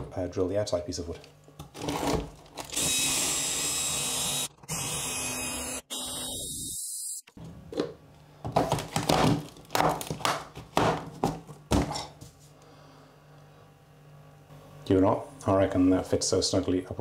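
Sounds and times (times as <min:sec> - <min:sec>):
cordless drill cutting through wood: 0:02.7 - 0:07.3.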